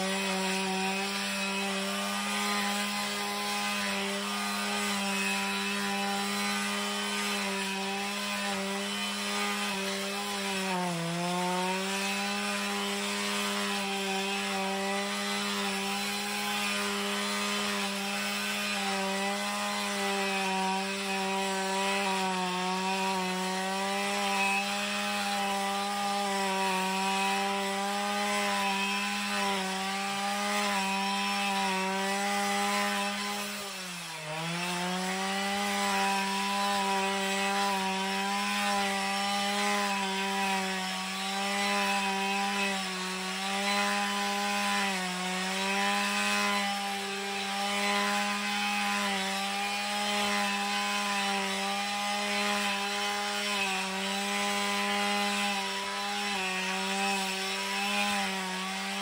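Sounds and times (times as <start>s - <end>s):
brushcutter engine at high revs: 0.0s - 59.0s.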